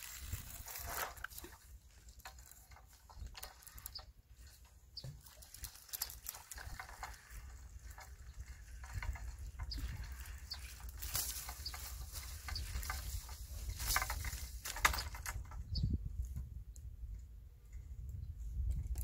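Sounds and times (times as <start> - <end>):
wind rumble on microphone: 0.0 - 1.6, 6.0 - 19.0
clothing and gear rustling: 0.0 - 3.9, 10.1 - 14.8.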